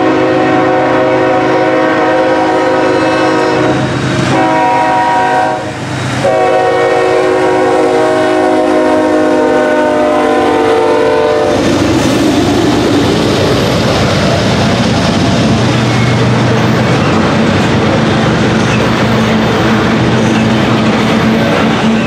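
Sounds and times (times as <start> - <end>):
locomotive horn: 0.0 - 11.6
train wheels clacking on rails: 10.5 - 22.0.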